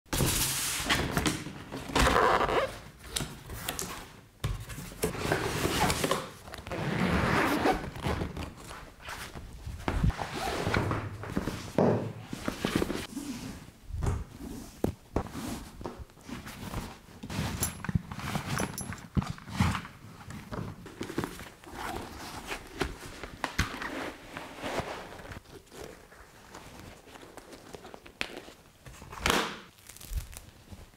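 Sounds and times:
zipper: 2.0s - 2.8s, 6.6s - 8.3s, 10.0s - 10.8s
nylon bag rustling: 29.7s - 30.9s.

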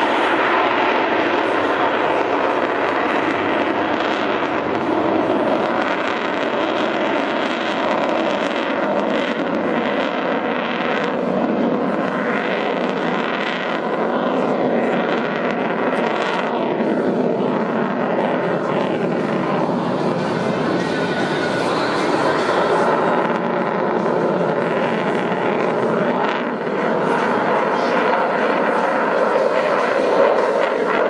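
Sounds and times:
jet engines roaring overhead: 0.0s - 31.0s.

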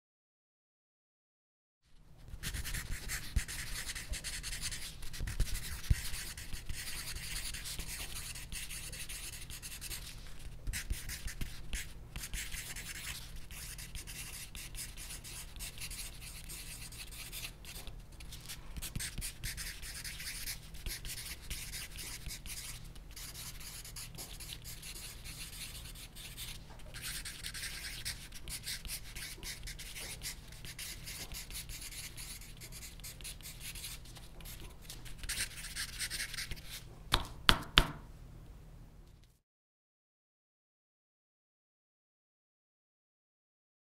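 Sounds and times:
pencil scratching on paper: 2.4s - 36.8s.

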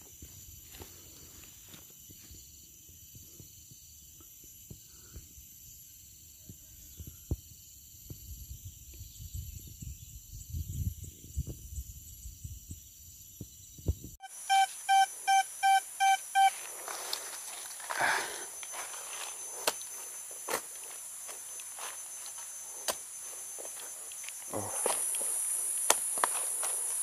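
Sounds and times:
high insect drone: 0.0s - 27.0s
metal detector beeping: 14.2s - 17.4s
rustling: 16.5s - 24.4s.

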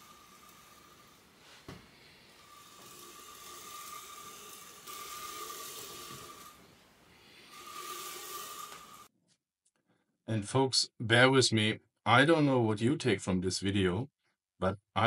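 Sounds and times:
bearing block whirring along rail: 0.0s - 9.1s.

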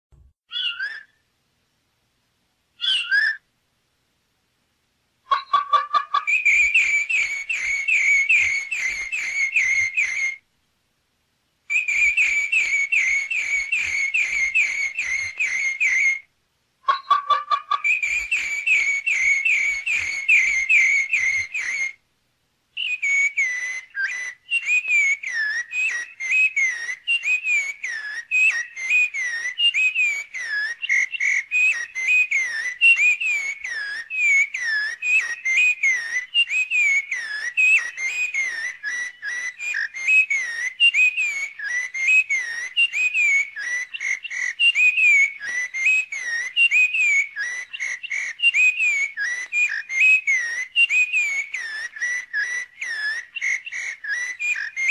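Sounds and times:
rapid whistled chirps: 0.5s - 1.2s, 2.8s - 3.5s, 5.3s - 10.4s, 11.7s - 22.0s, 22.8s - 54.9s.

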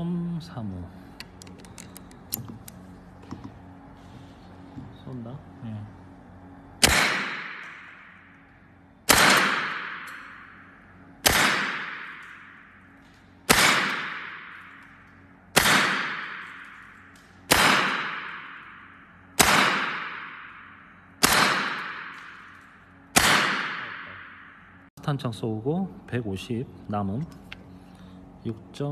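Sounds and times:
air rifle shots with echo: 6.8s - 8.1s, 9.1s - 10.6s, 11.2s - 12.8s, 13.5s - 14.8s, 15.6s - 22.5s, 23.2s - 24.8s.

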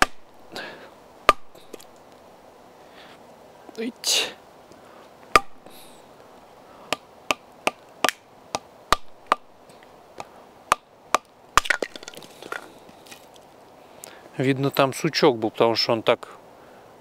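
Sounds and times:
wooden baton striking knife spine: 0.0s - 0.2s.

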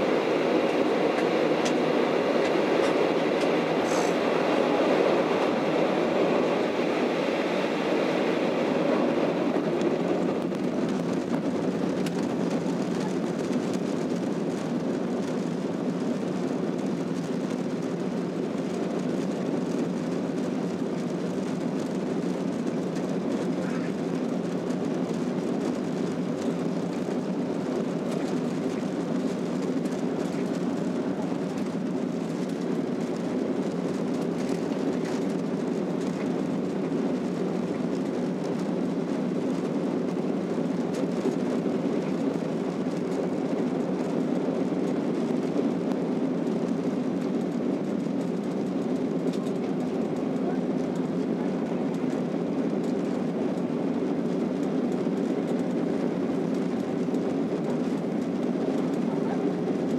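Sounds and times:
airplane cabin engine rumble: 0.0s - 59.9s.

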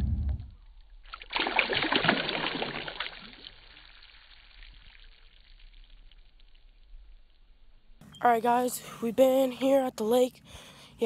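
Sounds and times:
water splashing and gurgling: 0.0s - 6.9s.

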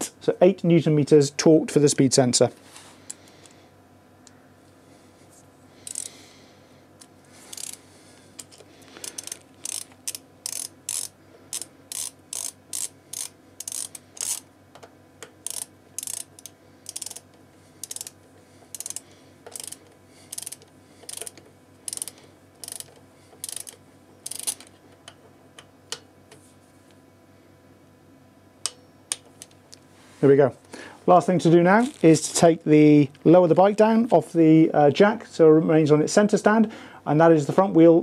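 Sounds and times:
ratchet wrench clicking: 5.8s - 6.1s, 7.5s - 7.8s, 8.4s - 14.5s, 15.4s - 24.7s.

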